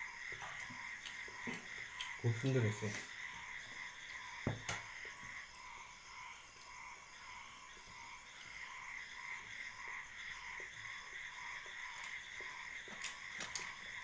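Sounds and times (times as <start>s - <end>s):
faint small ticks: 11.6s - 13.8s.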